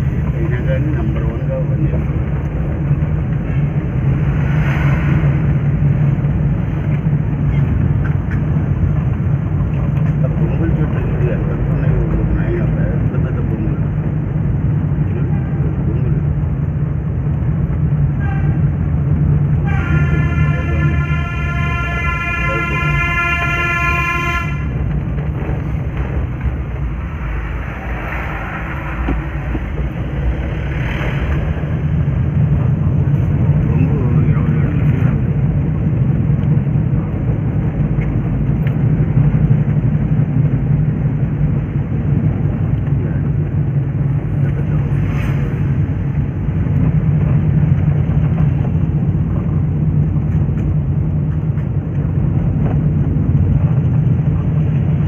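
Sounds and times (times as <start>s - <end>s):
bus passing close: 0.0s - 55.0s
car engine and road noise: 0.0s - 55.0s
vehicle horn long tone: 18.2s - 18.6s, 19.6s - 24.8s.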